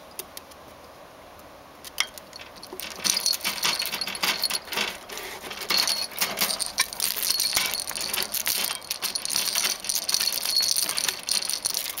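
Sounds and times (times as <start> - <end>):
wire cage door rattling: 2.3 - 12.0.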